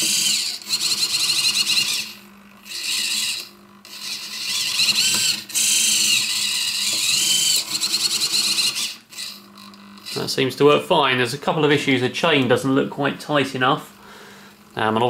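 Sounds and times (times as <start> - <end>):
servo motor and gearbox whining: 0.0 - 10.3.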